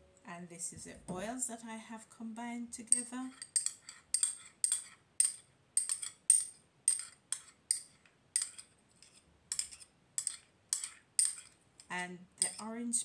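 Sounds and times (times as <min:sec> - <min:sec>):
spoon scraping a glass bowl: 0:02.9 - 0:11.6, 0:12.4 - 0:12.8.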